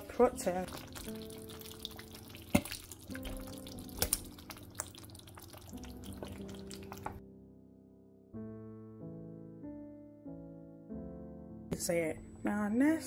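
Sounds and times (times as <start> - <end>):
stew simmering with wet pops: 0.0 - 7.2
soft background music: 0.0 - 13.0.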